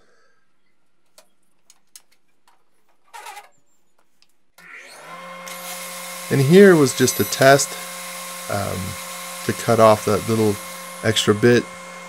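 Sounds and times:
table saw motor spinning up: 4.6s - 12.0s.

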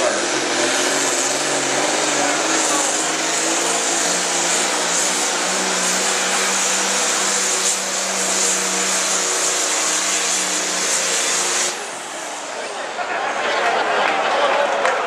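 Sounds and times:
diesel tractor engine at full throttle: 0.0s - 14.8s.

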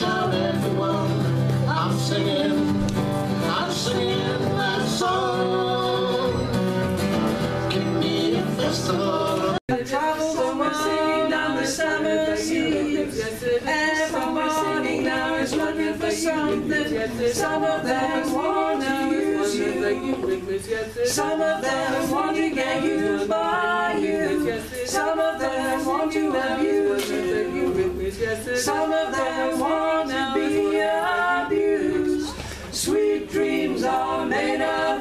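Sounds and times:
women singing a cappella: 0.0s - 6.5s, 7.7s - 35.0s
man and woman singing: 0.0s - 6.6s, 7.5s - 35.0s
acoustic guitar strumming: 0.0s - 9.6s.

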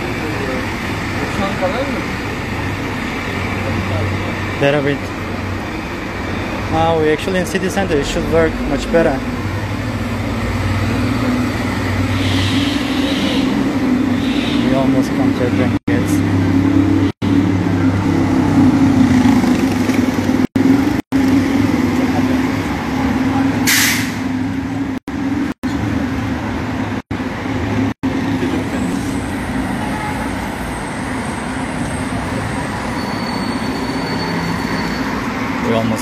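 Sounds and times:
city street traffic: 0.0s - 36.0s
heavy vehicle engine running: 0.0s - 36.0s
short sharp hiss: 23.7s - 24.2s.

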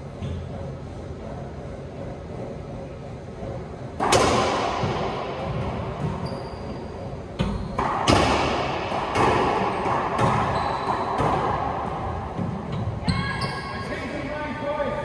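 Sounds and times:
racquet striking ball: 4.0s - 13.0s
ball hitting walls and floor: 4.0s - 13.6s.

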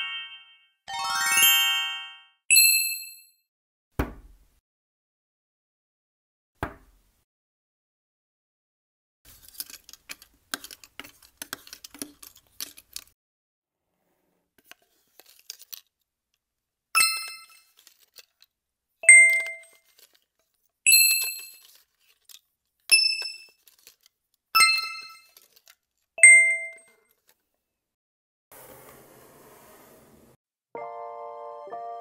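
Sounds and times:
bell-like dings: 0.0s - 3.4s, 26.2s - 26.8s.

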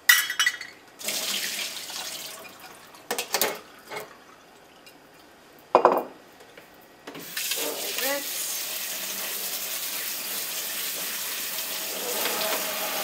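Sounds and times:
water pouring into a sink: 1.0s - 3.2s, 7.2s - 13.0s.

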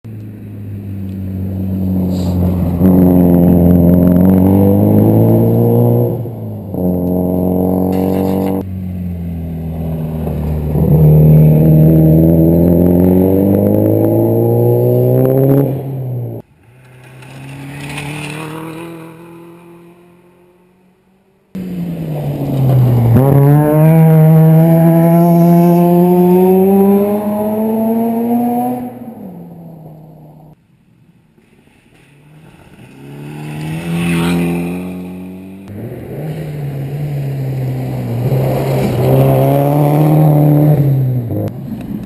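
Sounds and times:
rally cars accelerating on gravel: 0.1s - 20.6s, 21.6s - 30.6s, 31.4s - 42.0s
car passing by: 7.8s - 20.8s, 32.0s - 42.0s.

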